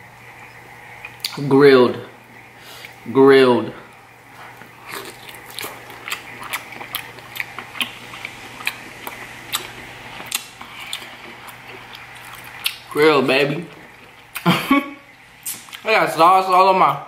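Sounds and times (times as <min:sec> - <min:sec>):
chewing and biting: 0:04.4 - 0:12.9
wet mouth clicks: 0:04.8 - 0:12.9, 0:15.4 - 0:15.8.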